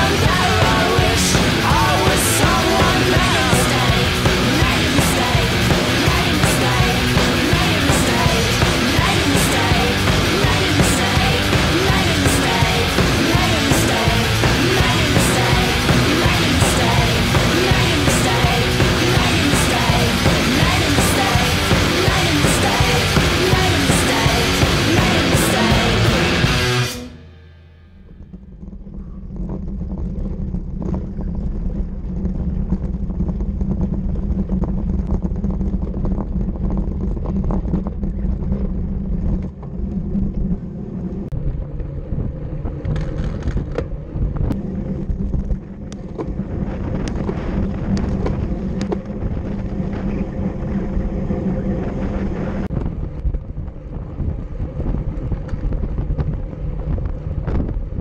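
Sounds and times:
road rumble: 0:00.0 - 0:58.0
wind buffeting microphone: 0:28.6 - 0:58.0.

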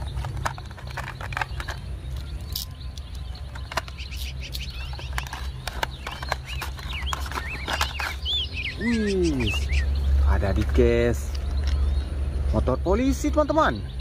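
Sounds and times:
birds chirping: 0:00.0 - 0:14.0
cardboard box clicks and crinkles: 0:03.4 - 0:08.4.

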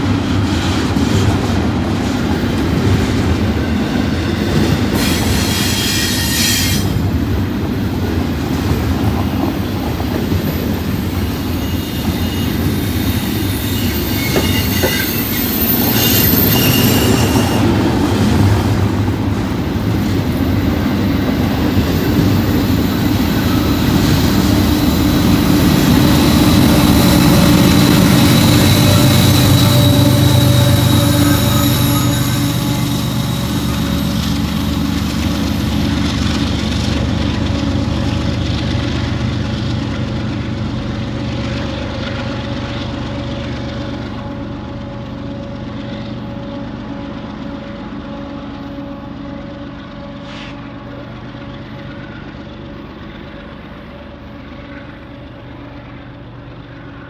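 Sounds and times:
diesel locomotive engine hum: 0:00.0 - 0:57.0
train wheels rumbling on rails: 0:00.0 - 0:57.0
high wheel squeal: 0:03.6 - 0:07.0, 0:09.2 - 0:18.4, 0:20.3 - 0:36.2.

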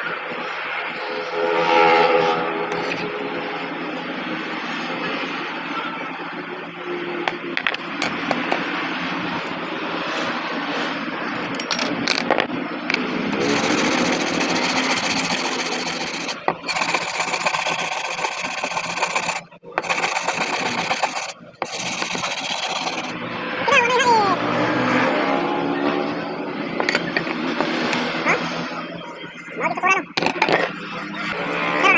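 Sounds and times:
glass cutter scoring glass: 0:13.3 - 0:23.1
glass edge rasping: 0:13.4 - 0:23.1.

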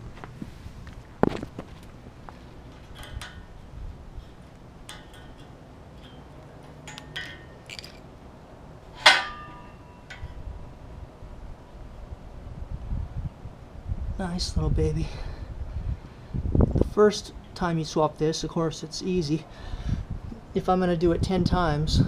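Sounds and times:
ringing metal clank: 0:02.8 - 0:08.2, 0:08.8 - 0:10.5
screwdriver clicking on metal: 0:02.9 - 0:03.6, 0:04.2 - 0:08.1.

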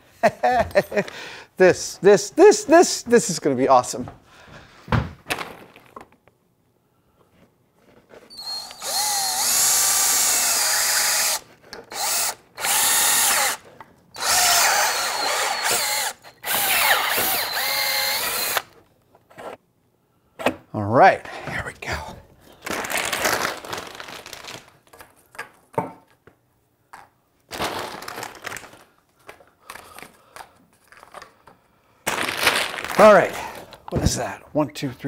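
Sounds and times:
power drill drilling into plastic: 0:08.3 - 0:13.6, 0:14.2 - 0:18.7.

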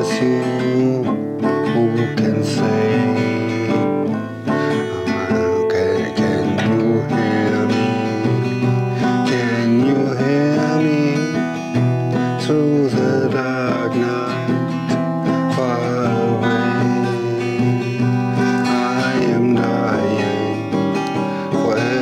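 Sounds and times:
acoustic guitar strumming: 0:00.0 - 0:22.0.

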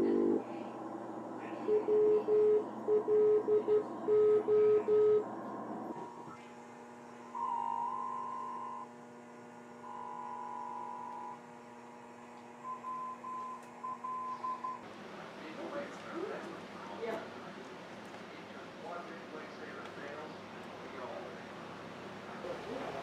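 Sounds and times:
electrical hum: 0:00.0 - 0:23.0
morse code beeps: 0:01.7 - 0:05.2, 0:07.4 - 0:08.9, 0:09.9 - 0:11.4, 0:12.7 - 0:14.8.

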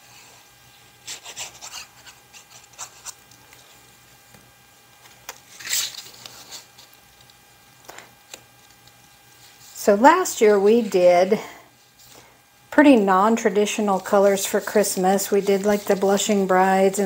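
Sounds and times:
paper rustling: 0:05.1 - 0:07.0, 0:13.9 - 0:16.9.

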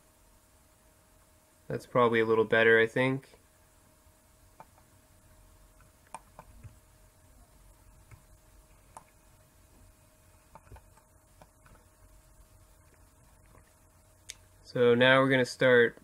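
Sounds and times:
faint steady hum: 0:00.0 - 0:16.0
mouse and keyboard clicks: 0:05.8 - 0:06.8, 0:10.5 - 0:11.8.

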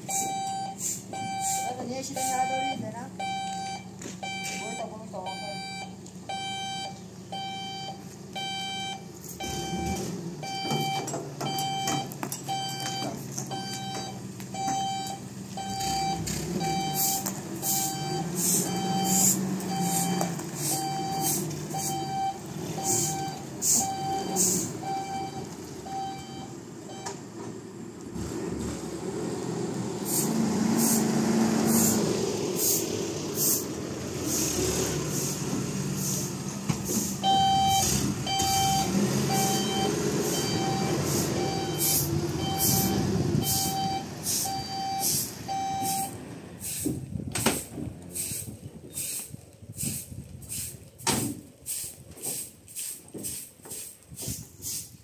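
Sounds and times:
reversing alarm beeping: 0:00.0 - 0:27.2, 0:37.2 - 0:46.2
engine running: 0:00.0 - 0:54.4.

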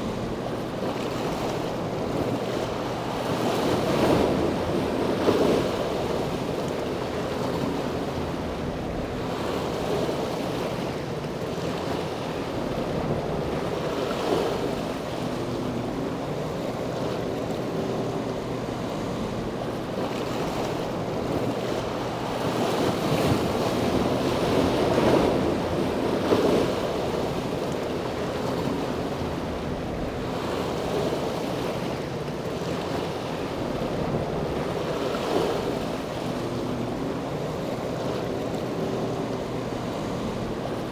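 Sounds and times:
harbour water washing: 0:00.0 - 0:40.9.

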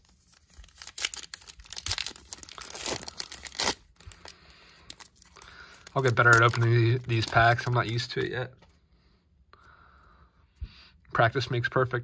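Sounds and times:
wrapper tearing: 0:00.0 - 0:08.2
foil wrapper crinkling: 0:00.0 - 0:08.3.

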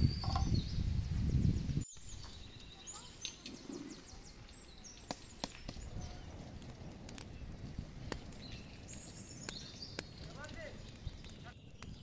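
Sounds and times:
faint bird chirps: 0:00.0 - 0:06.3
low fire hiss: 0:00.0 - 0:12.0
stick poking fire embers: 0:02.0 - 0:12.0.

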